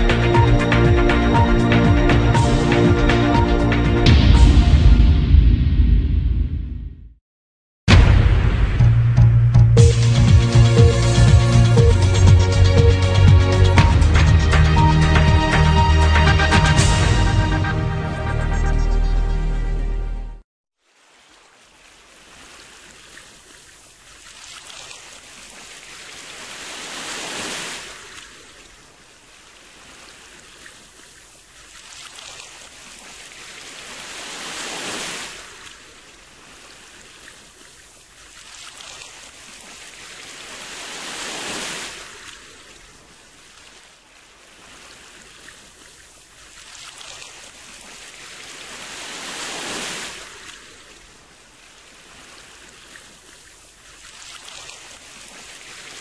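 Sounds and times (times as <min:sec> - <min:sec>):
ocean surf washing in: 0:26.1 - 0:28.3, 0:33.5 - 0:35.8, 0:40.0 - 0:42.8, 0:47.2 - 0:53.2.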